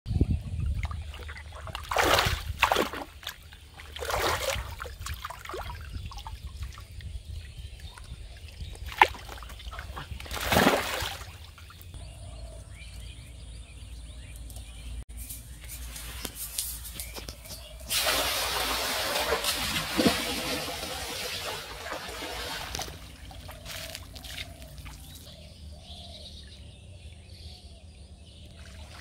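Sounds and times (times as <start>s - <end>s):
water splashing and sloshing: 0.1s - 12.0s, 15.8s - 25.4s, 28.4s - 29.0s
water trickling off net: 17.8s - 25.0s.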